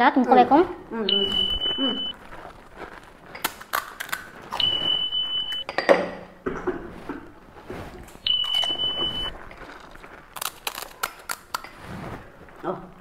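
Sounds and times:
high electronic beep: 1.1 - 2.2, 4.6 - 5.7, 8.3 - 9.3
crisp food crunching: 2.1 - 4.7, 9.3 - 13.0.

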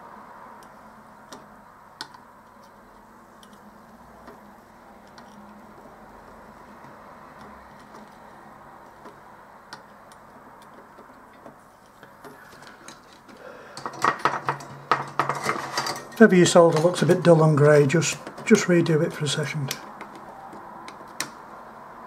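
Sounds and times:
low steady hiss and hum: 0.0 - 20.5
soldering ticks and clicks: 8.9 - 12.1.

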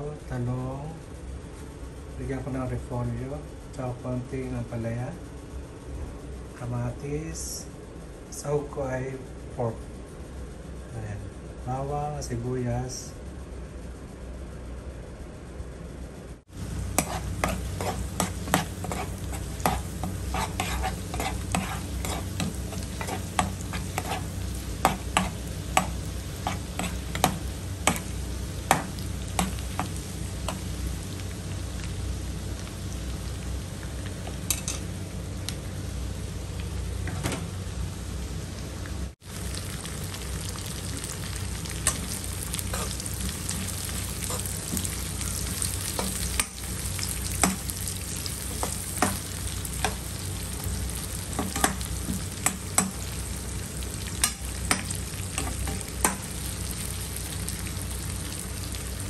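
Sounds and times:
garlic and onion sizzling in oil: 16.5 - 59.0
metal spoon scraping a pan: 17.0 - 28.1, 41.8 - 46.6.

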